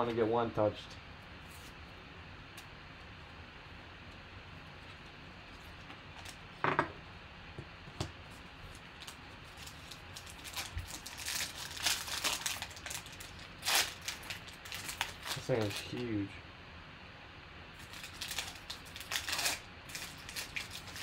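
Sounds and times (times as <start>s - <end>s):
foil pack crinkling and tearing: 8.3s - 16.2s, 17.8s - 21.0s.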